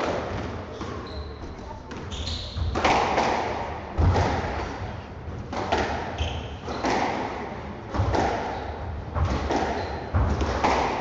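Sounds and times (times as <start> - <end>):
shoe squeak on floor: 0.7 - 2.8, 9.8 - 10.1
squash ball thuds: 1.5 - 11.0.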